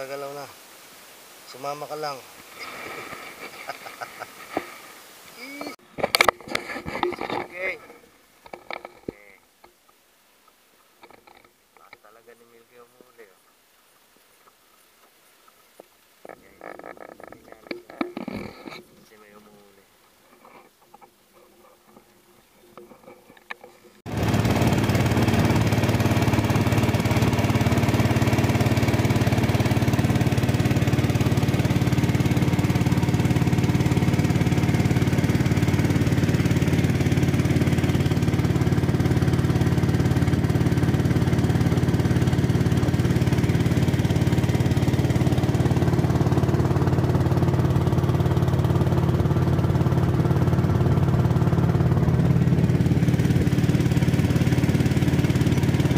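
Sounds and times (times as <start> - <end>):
small boat engine running: 20.2 - 55.9.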